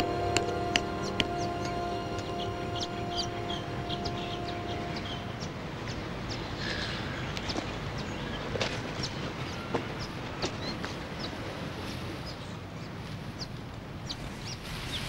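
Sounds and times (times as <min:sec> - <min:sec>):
background music held notes: 0:00.0 - 0:06.8
birds chirping: 0:00.0 - 0:11.5, 0:12.2 - 0:15.0
outdoor hush: 0:00.0 - 0:12.8.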